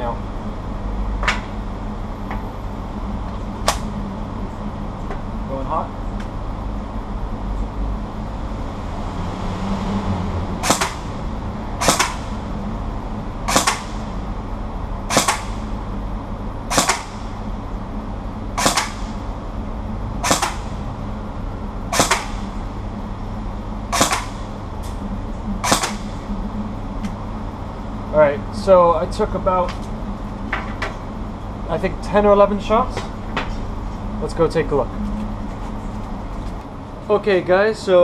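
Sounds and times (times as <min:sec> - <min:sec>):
airsoft gun firing single shots: 0:11.8 - 0:12.3, 0:13.5 - 0:14.0, 0:15.1 - 0:15.6, 0:16.7 - 0:17.2, 0:18.6 - 0:19.1, 0:20.2 - 0:20.6, 0:21.9 - 0:22.4, 0:23.9 - 0:24.4, 0:25.6 - 0:26.0.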